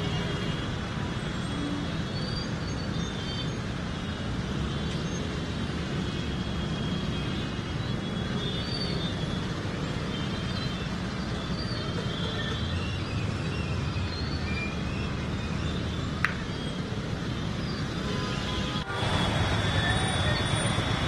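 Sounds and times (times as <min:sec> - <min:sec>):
traffic rumble with hiss: 0:00.0 - 0:21.0.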